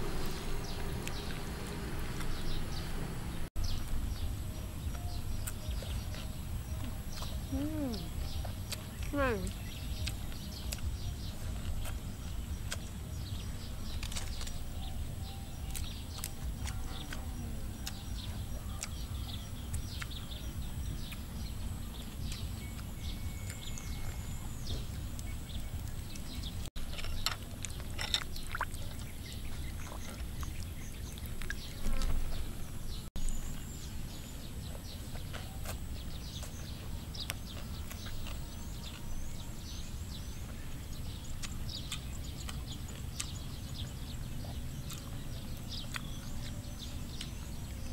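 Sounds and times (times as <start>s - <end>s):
low rumble: 0.0s - 26.9s
small birds chirping: 0.0s - 47.9s.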